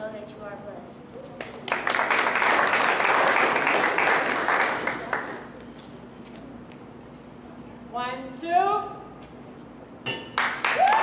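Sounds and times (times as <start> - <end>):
audience applauding: 1.4 - 5.4, 10.4 - 11.0.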